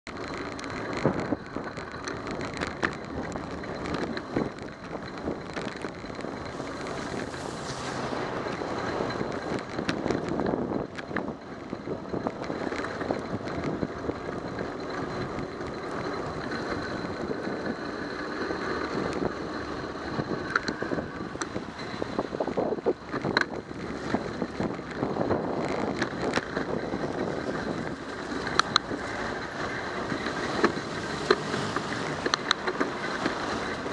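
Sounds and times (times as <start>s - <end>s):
bicycle clicks and rattles: 0.1s - 33.9s
wind on microphone: 0.9s - 17.9s, 18.8s - 33.9s
tyres hissing on wet road: 6.5s - 9.1s, 28.2s - 33.9s.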